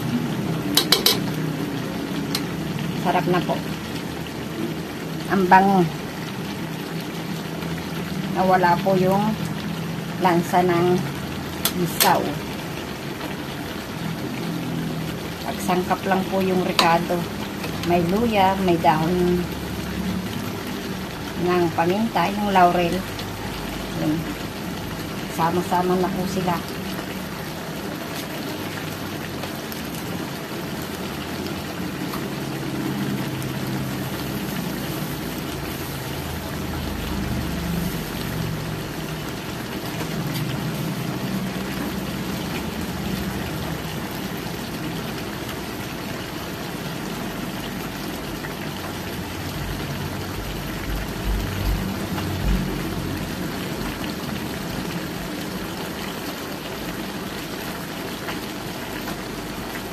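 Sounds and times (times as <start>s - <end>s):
sauce bubbling and sizzling: 0.0s - 59.9s.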